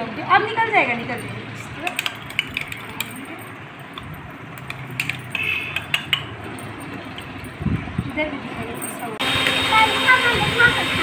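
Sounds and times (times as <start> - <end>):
metal spoon clinking and scraping: 1.2 - 7.6.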